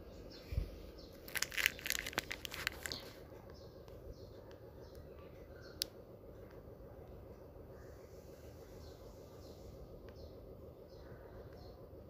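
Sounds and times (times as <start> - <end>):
faint chirps: 0.0 - 12.0
sharp clicks and crackles: 1.1 - 5.1, 5.7 - 6.6.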